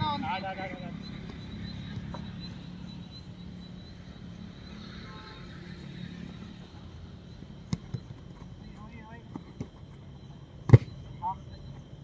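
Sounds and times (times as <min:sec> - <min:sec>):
faint high whine: 0:00.0 - 0:12.0.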